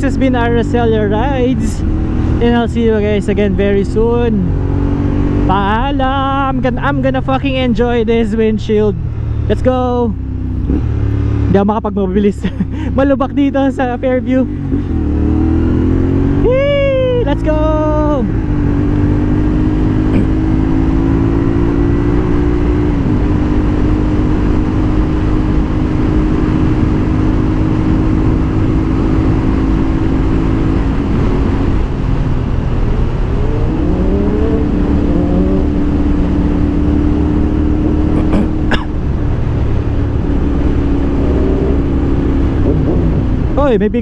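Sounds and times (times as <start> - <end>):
motorcycle engine running: 0.0 - 44.0
road and wind noise: 0.0 - 44.0.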